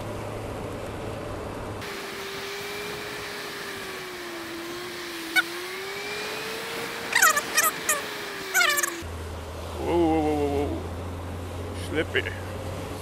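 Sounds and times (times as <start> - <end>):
wind and wet road noise: 0.0 - 13.0.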